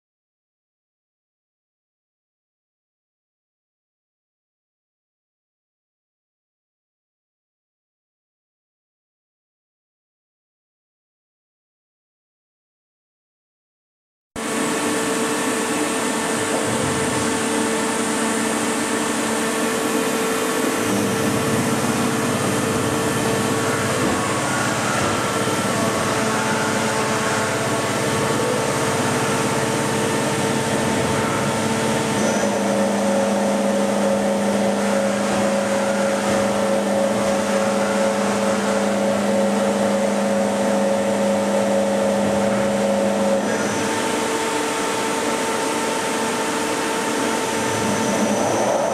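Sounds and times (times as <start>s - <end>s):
lathe humming and whining: 14.4s - 48.9s.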